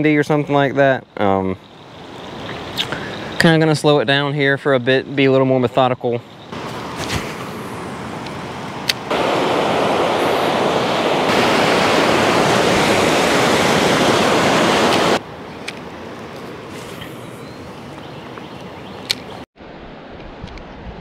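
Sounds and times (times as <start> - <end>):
quieter rushing background: 6.9 - 16.0
loud rushing hiss: 9.1 - 15.2
sharp clicks: 19.0 - 19.4.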